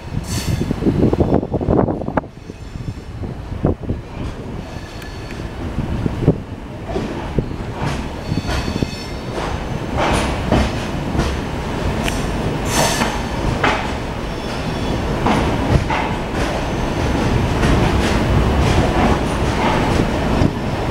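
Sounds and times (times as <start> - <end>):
train wheels rumbling: 0.0 - 20.9
high wheel squeal: 4.7 - 5.5, 8.2 - 9.3, 14.2 - 15.1
wheels clacking over rail joints: 6.7 - 20.9.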